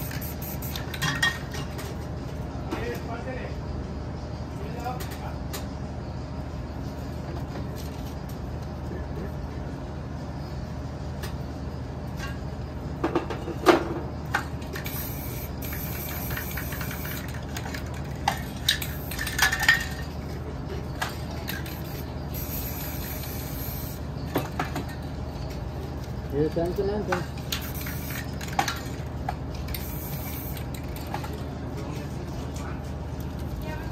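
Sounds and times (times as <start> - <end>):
spray can hissing: 0.0 - 0.9, 14.8 - 17.4, 21.7 - 24.0, 27.6 - 28.3, 29.7 - 30.8
steady low hum: 0.0 - 33.9
spray cans clinking: 14.6 - 20.2, 21.0 - 25.0, 27.0 - 29.0, 29.6 - 31.4.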